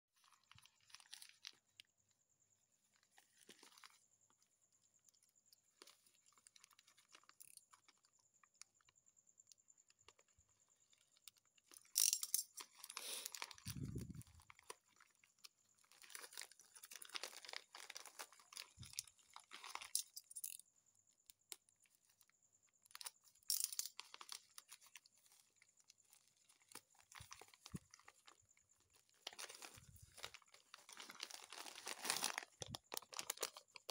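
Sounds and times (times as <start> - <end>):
plastic envelope crinkling: 0.2 - 1.9, 3.0 - 4.0, 12.6 - 20.4, 22.9 - 33.9.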